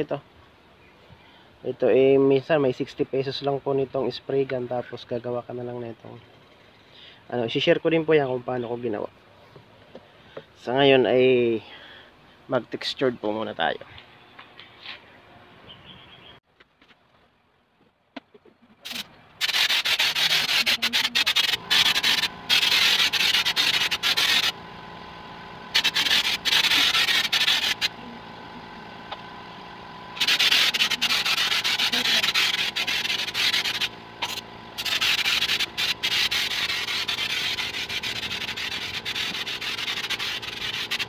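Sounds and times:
steady hum: 18.7s - 41.0s
spray gun hissing: 18.8s - 24.6s, 25.7s - 28.0s, 30.2s - 41.0s.

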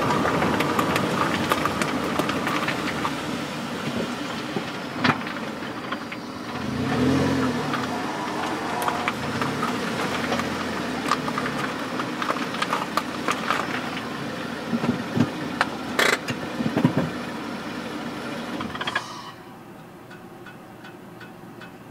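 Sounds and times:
car exhaust drone: 0.0s - 21.9s
sharp ticks and knocks: 20.0s - 21.9s.

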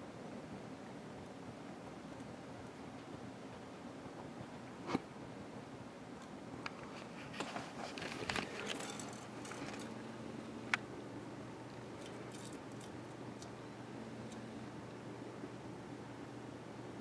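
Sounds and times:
faint steady hum: 0.0s - 17.0s
soft rustling and scratching: 6.6s - 10.5s.

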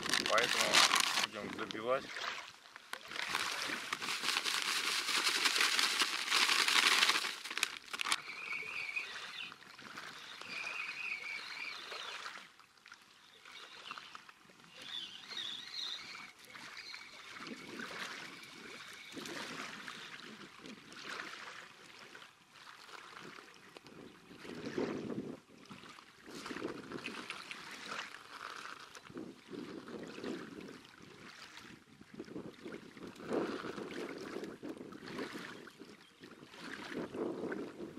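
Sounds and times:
dry bait pouring into bucket: 0.0s - 1.8s, 3.0s - 8.2s
bird twittering: 8.2s - 9.5s.

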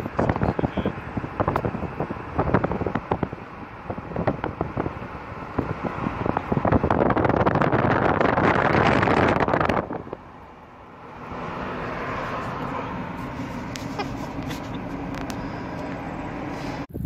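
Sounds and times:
wind buffeting microphone: 0.0s - 10.5s.

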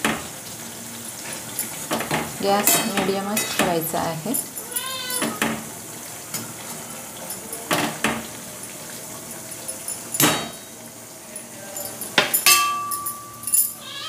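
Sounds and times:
steel spoon clinking against pan: 11.9s - 13.8s.

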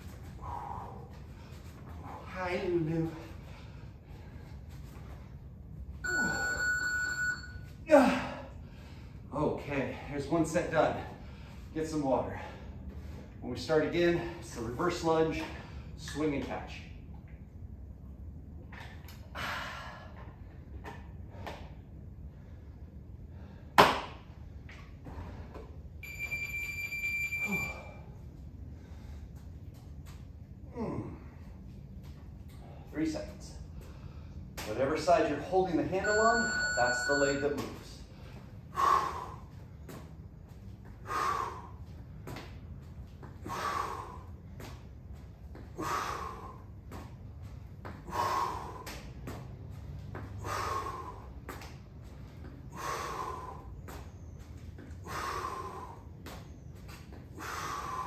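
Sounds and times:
high-pitched electronic beep: 6.0s - 7.6s
man exhaling forcefully: 45.8s - 46.7s, 48.0s - 48.9s, 57.4s - 58.0s.

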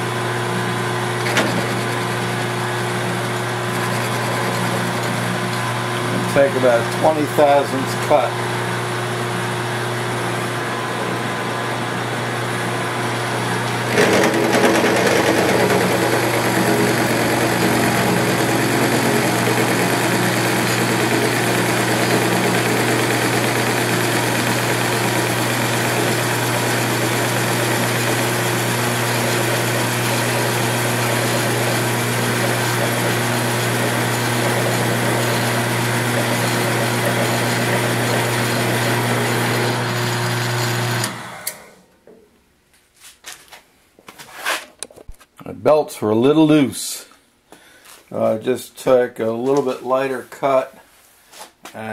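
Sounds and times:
milling machine motor hum: 0.0s - 41.6s
face mill cutting aluminum: 1.2s - 5.8s, 13.7s - 41.6s.

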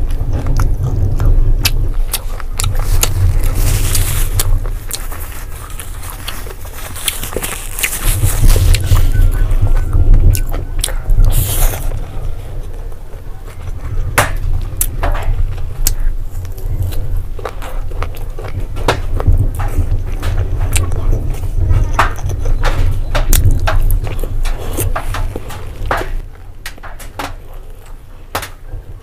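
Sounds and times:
wet chewing and lip smacks: 0.0s - 13.8s
steady low hum: 0.0s - 29.0s.

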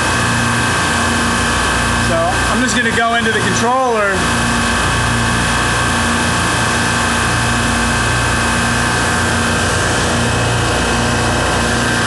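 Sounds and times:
refrigeration compressors running: 0.0s - 12.0s.

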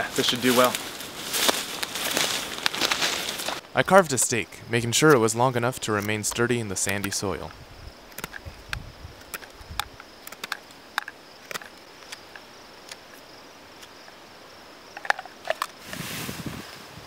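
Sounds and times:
crickets chirring: 0.0s - 17.0s
knife whittling wood clicks: 5.1s - 13.2s.

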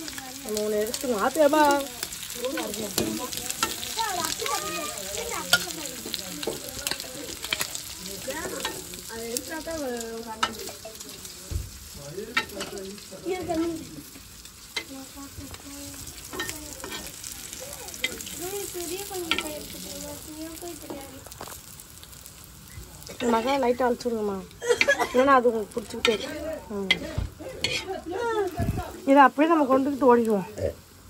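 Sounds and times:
prawns sizzling in oil: 0.0s - 31.0s
metal spatula scraping pan: 16.3s - 17.2s, 23.2s - 23.8s, 24.7s - 28.0s.

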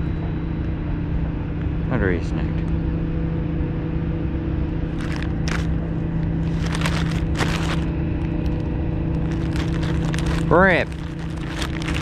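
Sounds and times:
engine drone: 0.0s - 12.0s
scrapes and crackles: 5.0s - 5.7s, 6.4s - 8.6s, 9.2s - 12.0s.

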